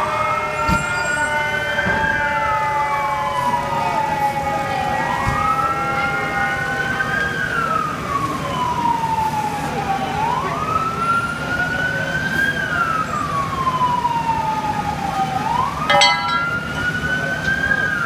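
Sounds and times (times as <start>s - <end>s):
fire engine siren wailing: 0.0s - 18.0s.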